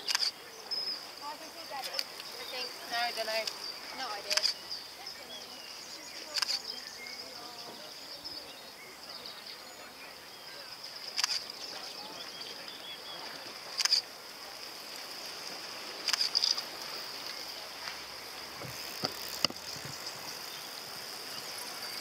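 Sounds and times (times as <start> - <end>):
sharp clicks: 0.0 - 0.3, 4.3 - 4.6, 11.1 - 11.5, 13.8 - 14.0, 16.0 - 16.6
bicycle tyres hissing on tarmac: 0.0 - 9.7, 10.5 - 22.0.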